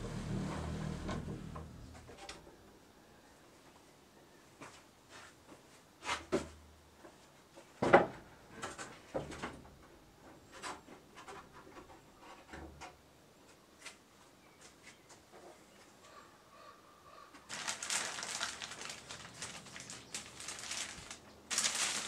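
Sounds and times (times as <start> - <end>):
wooden shutters knocking and scraping: 7.8 - 9.8.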